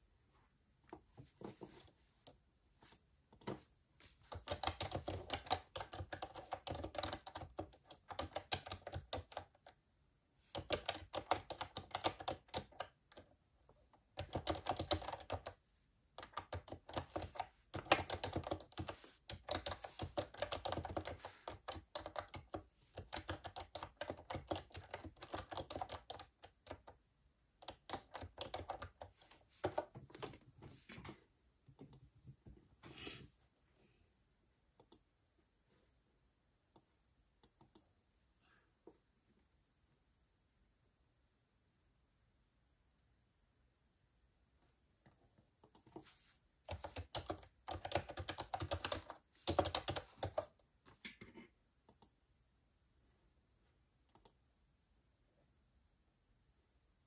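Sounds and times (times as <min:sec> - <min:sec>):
typing on computer keyboard: 0:04.2 - 0:09.8, 0:10.5 - 0:13.3, 0:13.9 - 0:27.0, 0:27.6 - 0:30.5, 0:46.7 - 0:52.2.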